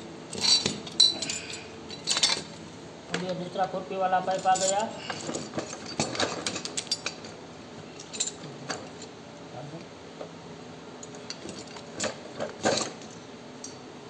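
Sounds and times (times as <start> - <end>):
metal clinking and knocking: 0.3 - 3.3, 4.3 - 7.4.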